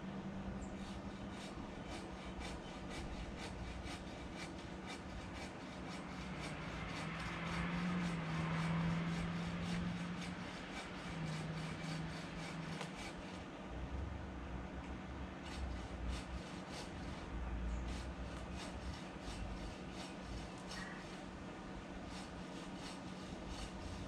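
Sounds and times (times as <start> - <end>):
hand saw cutting branch: 0.6 - 13.5, 15.4 - 24.0.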